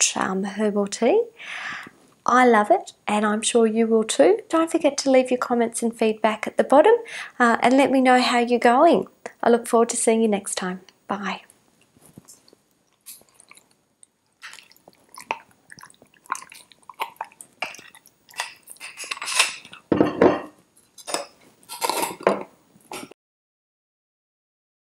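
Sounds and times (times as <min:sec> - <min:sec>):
teaspoon scraping inside glass jar: 0:17.1 - 0:19.9, 0:20.8 - 0:22.3.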